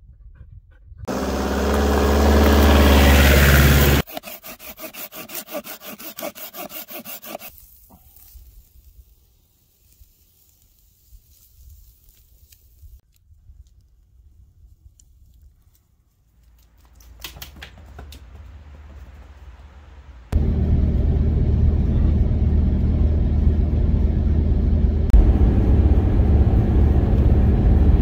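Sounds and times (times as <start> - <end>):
hand saw cutting a log: 1.1 - 7.5
loud steady drone: 20.4 - 28.0.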